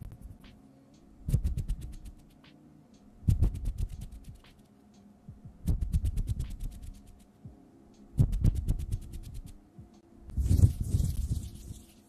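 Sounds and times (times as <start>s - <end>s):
hands rubbing near microphone: 5.7s - 7.3s, 8.3s - 9.6s, 10.4s - 12.0s.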